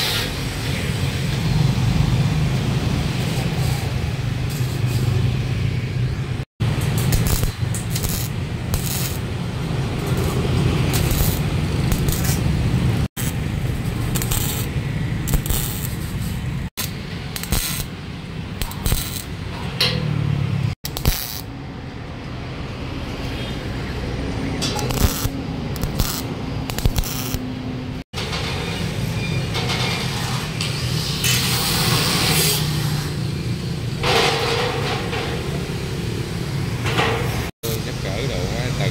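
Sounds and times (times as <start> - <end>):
electric welding arc crackling: 6.6 - 18.0, 18.6 - 19.4, 20.8 - 21.5, 24.7 - 27.4.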